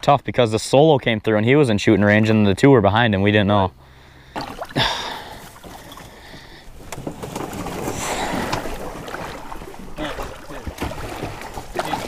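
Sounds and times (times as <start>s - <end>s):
water sloshing and splashing: 4.2s - 12.0s.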